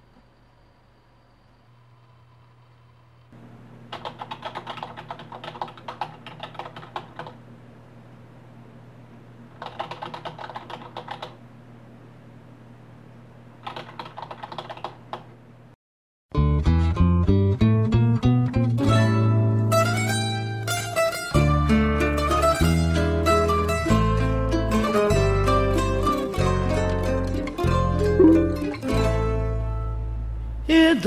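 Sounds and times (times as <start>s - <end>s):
steady low hum: 0.0s - 9.6s, 27.7s - 30.7s
keyboard typing: 3.9s - 7.4s, 9.6s - 11.4s, 13.6s - 15.3s.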